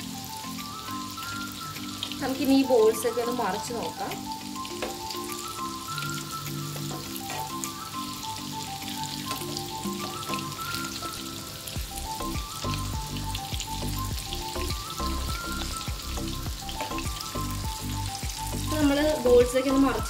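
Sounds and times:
background music: 0.0s - 20.0s
hot oil sizzling: 0.0s - 20.0s.

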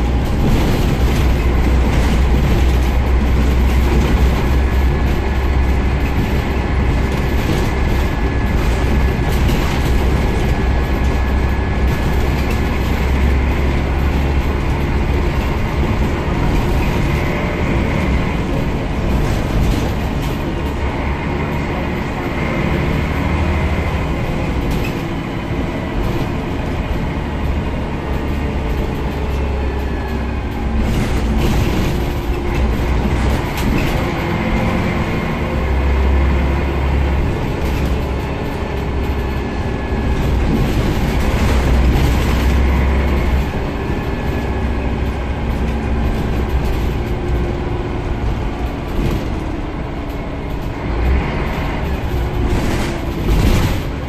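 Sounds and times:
bus diesel drone: 0.0s - 54.0s
rattles inside bus: 0.0s - 54.0s
road noise: 0.0s - 54.0s.

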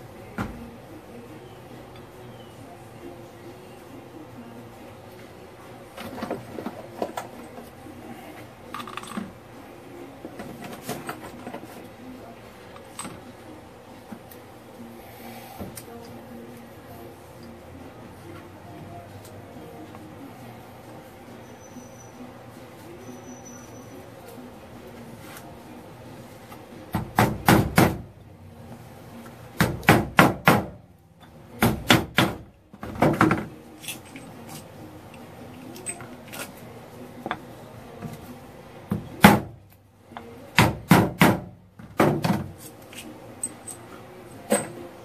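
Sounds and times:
wooden block hammering on metal: 26.9s - 28.1s, 29.6s - 30.8s, 31.6s - 33.5s, 40.5s - 42.4s.

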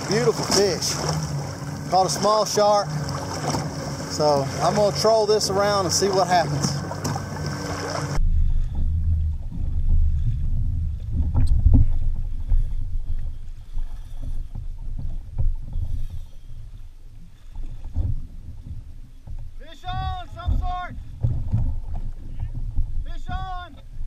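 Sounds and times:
water around kayak: 0.0s - 24.0s
wind rumble: 6.4s - 24.0s.

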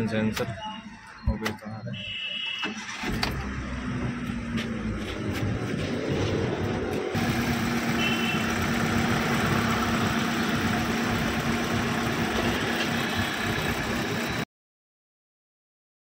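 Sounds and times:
car engine idling: 6.7s - 14.4s.

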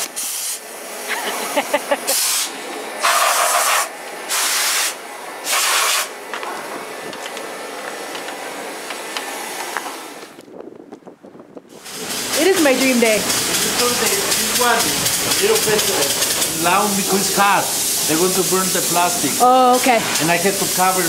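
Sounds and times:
spray foam gun hissing: 0.0s - 1.2s, 2.0s - 6.2s, 11.8s - 21.0s.

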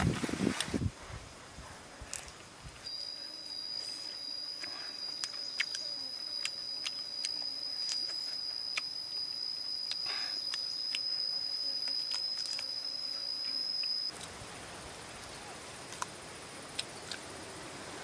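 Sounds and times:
person chewing with mouth clicks: 4.6s - 8.9s.

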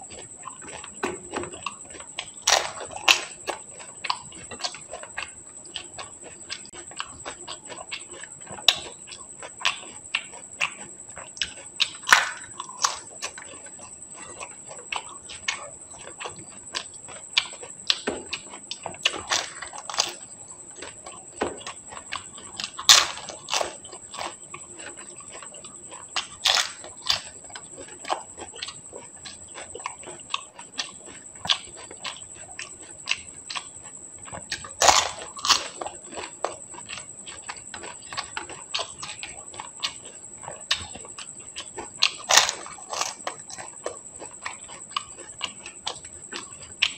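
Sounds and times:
wet chewing and smacking: 0.0s - 46.9s
crisp shells crunching in mouth: 2.4s - 3.4s, 12.0s - 13.0s, 19.1s - 20.2s, 26.2s - 27.8s, 34.6s - 36.9s, 42.2s - 45.6s.

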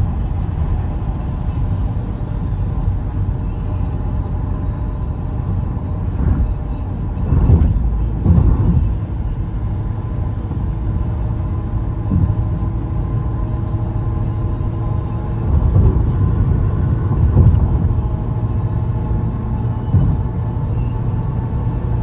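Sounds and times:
tyre and road rumble: 6.0s - 9.3s, 14.8s - 22.0s.

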